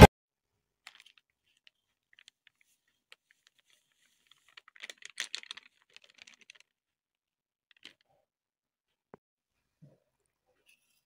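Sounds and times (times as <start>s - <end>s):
flour packet crackling: 3.4s - 6.7s.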